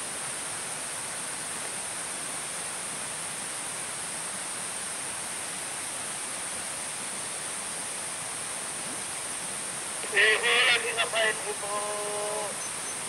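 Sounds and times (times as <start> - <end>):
forest ambience hiss: 0.0 - 13.0
constant high-pitched tone: 10.0 - 13.0.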